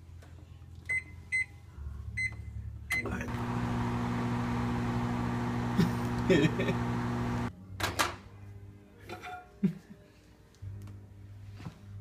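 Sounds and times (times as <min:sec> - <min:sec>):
microwave humming: 0:03.3 - 0:07.5.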